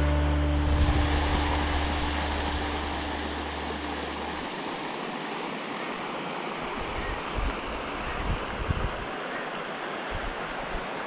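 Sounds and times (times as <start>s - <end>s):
background music: 0.0s - 4.7s
water spilling over weir: 0.2s - 5.5s.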